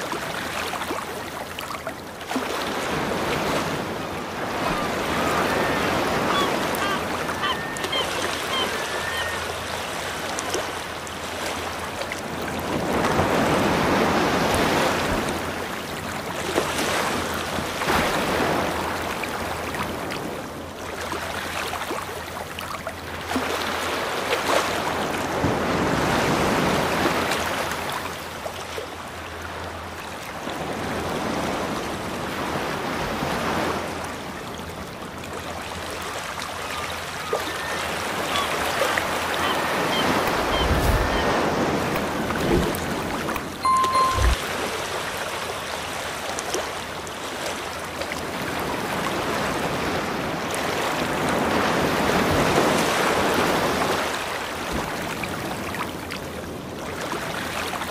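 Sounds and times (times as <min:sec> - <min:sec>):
sea waves washing onto shore: 0:00.0 - 0:57.9
faint bird calls: 0:04.6 - 0:09.7, 0:36.6 - 0:41.5.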